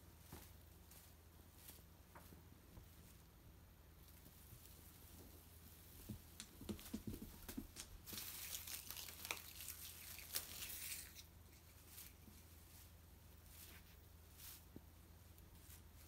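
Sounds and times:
metallic streamers crinkling: 7.8s - 13.8s.

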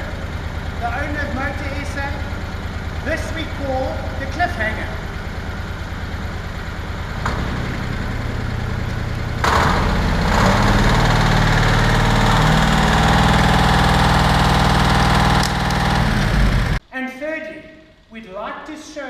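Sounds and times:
small motorbike engine revving: 9.4s - 16.8s.

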